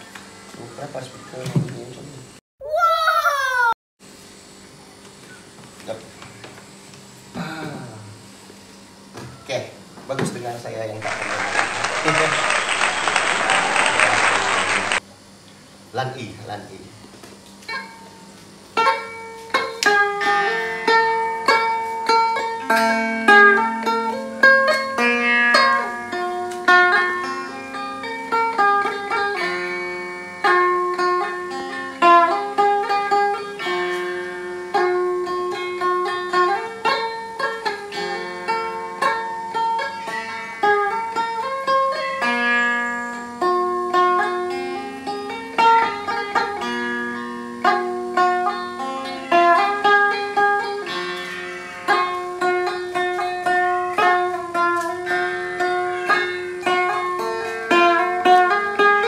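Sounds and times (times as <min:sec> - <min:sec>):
electric lute plucked melody: 0:18.8 - 0:59.0.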